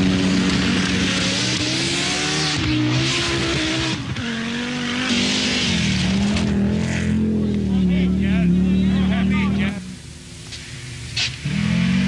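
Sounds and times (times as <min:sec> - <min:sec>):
rally car engine revving: 0:00.0 - 0:12.0
steady hiss: 0:09.8 - 0:11.6.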